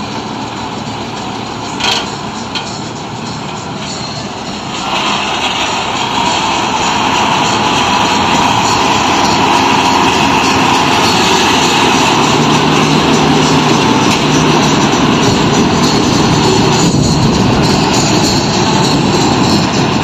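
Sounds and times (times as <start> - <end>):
combine harvester droning: 0.0 - 20.0.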